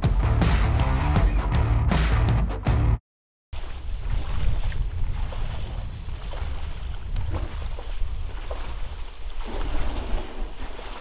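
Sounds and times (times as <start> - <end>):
water sloshing and splashing: 3.6 - 11.0
water swishes: 3.6 - 11.0
wind buffeting microphone: 3.7 - 10.8.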